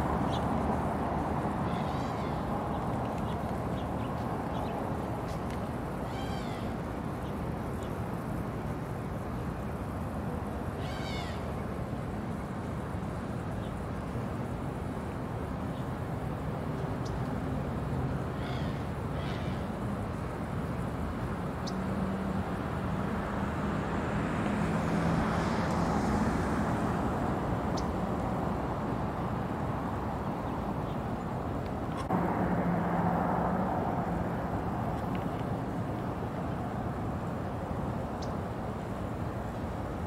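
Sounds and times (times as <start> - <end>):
road traffic rumble: 0.0 - 40.0
vehicle passing: 21.6 - 30.8, 32.0 - 37.9.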